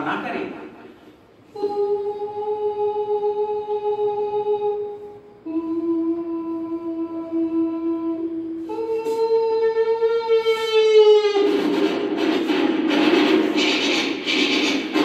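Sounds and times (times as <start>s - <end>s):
man imitating train horn: 7.7s - 11.6s.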